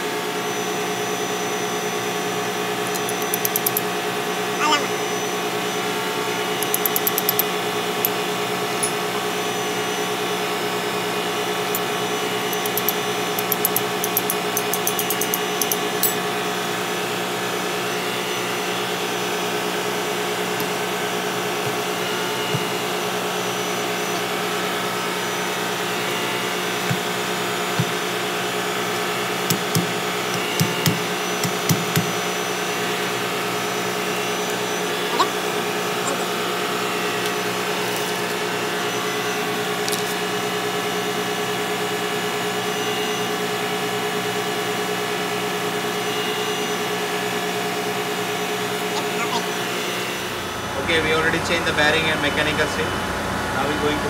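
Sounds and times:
spanner clicking on bolts: 2.9s - 3.9s, 6.6s - 8.2s, 8.8s - 9.0s, 12.5s - 16.3s
machinery droning: 11.5s - 16.4s.

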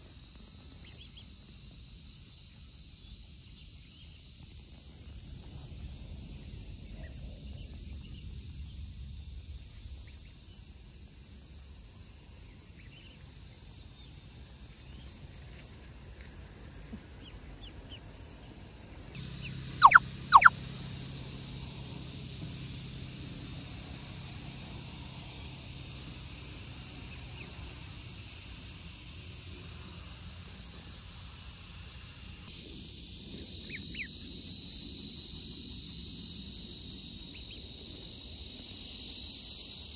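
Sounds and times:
insect chorus: 0.0s - 39.9s
loud duckling peeps: 19.7s - 20.5s, 33.6s - 34.1s
faint peeps: 19.8s - 20.5s.

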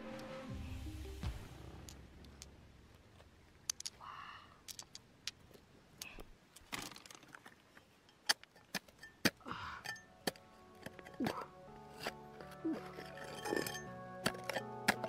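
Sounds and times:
small hard objects clicking: 3.6s - 4.0s, 4.6s - 15.0s
rattling scrapes: 9.9s - 15.0s.

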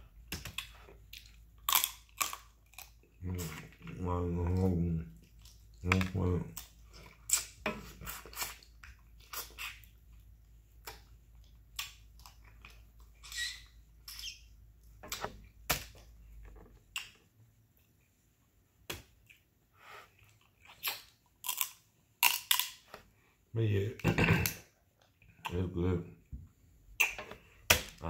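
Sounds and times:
chewing crab meat: 0.6s - 13.2s.

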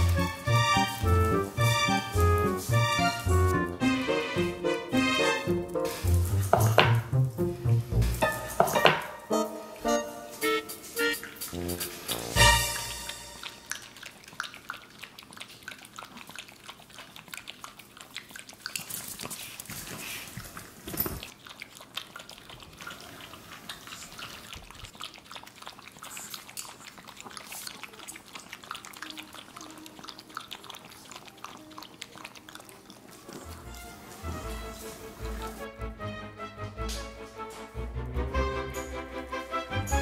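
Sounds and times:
dog lapping water: 11.0s - 35.6s.

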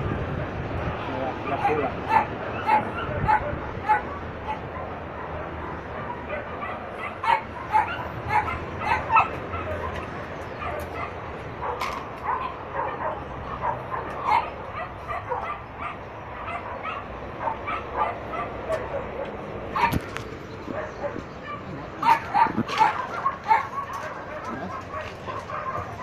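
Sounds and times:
dog yipping and whining: 2.1s - 4.9s, 6.0s - 12.5s.

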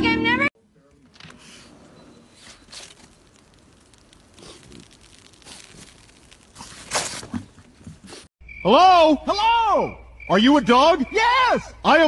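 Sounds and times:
snow crunching and rustling: 1.4s - 8.3s.

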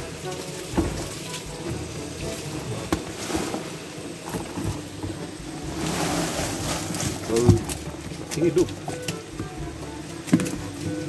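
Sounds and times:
shrimp poured onto crushed ice: 5.7s - 8.5s.

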